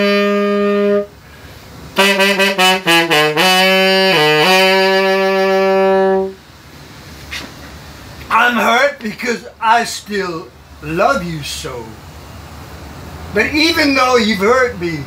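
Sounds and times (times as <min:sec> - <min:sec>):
saxophone playing slow melody: 0:00.0 - 0:06.4.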